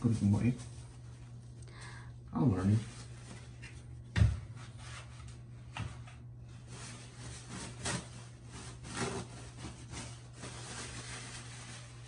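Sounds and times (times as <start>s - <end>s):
paper napkin being crumpled: 0.0s - 1.4s, 6.5s - 12.0s
steady low hum: 0.0s - 12.0s.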